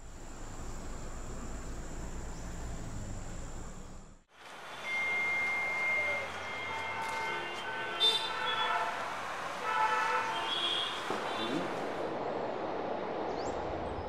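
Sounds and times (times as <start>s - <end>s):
background ambience: 0.0s - 14.0s
whistle-like tone: 4.7s - 7.5s.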